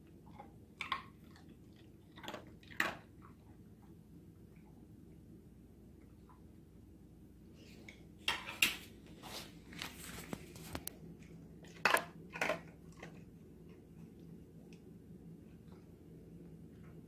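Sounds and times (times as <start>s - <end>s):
dog crunching dry food: 0.3s - 3.4s, 10.6s - 13.3s.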